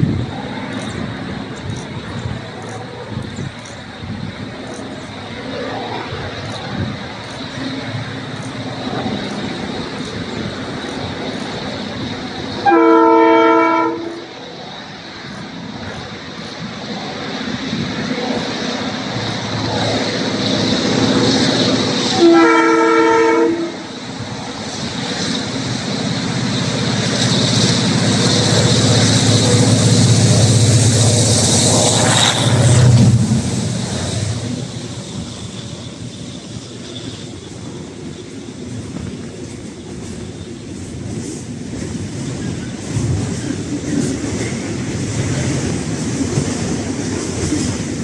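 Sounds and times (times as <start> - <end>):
locomotive engine drone: 0.0 - 48.0
multi-tone train horn: 12.6 - 14.4, 22.0 - 24.0.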